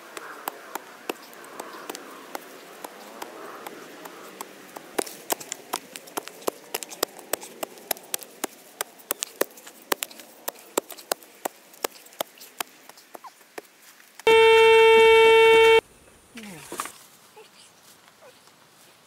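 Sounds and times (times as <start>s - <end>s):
metal detector electronic tone: 14.3s - 15.8s.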